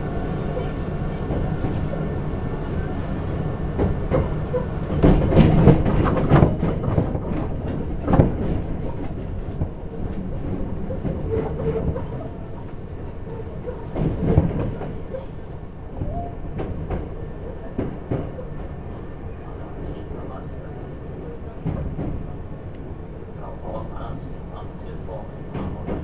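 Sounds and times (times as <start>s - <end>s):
wheels clattering over rail joints: 3.8s - 15.5s.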